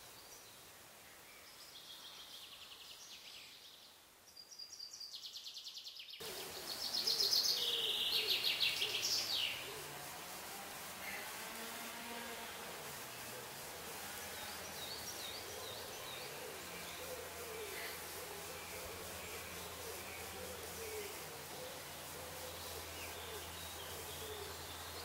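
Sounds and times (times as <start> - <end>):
faint woodland hiss: 0.0 - 25.0
songbirds trilling: 6.2 - 9.9, 13.2 - 25.0.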